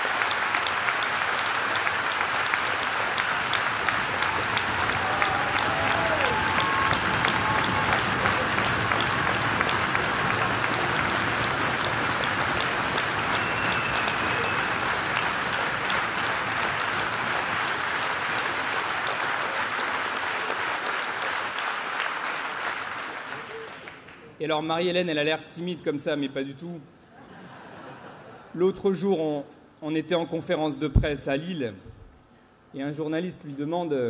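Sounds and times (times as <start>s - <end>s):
large audience clapping: 0.0s - 24.4s.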